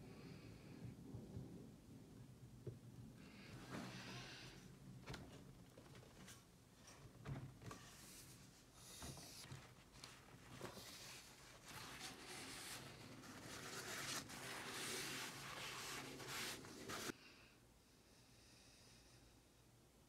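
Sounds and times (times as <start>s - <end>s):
sandpaper scratching wood: 11.7s - 17.1s.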